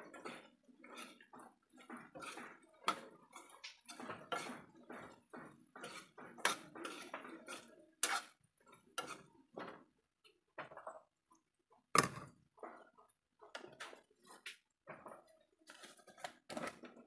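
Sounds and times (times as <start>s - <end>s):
spatula scraping a pan: 0.0s - 10.0s.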